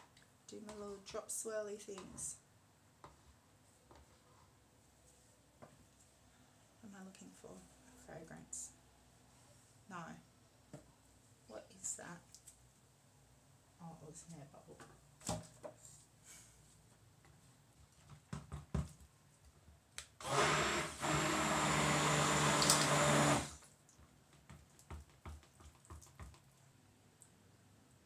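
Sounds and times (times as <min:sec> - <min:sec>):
stick blender running: 0:20.2 - 0:23.6.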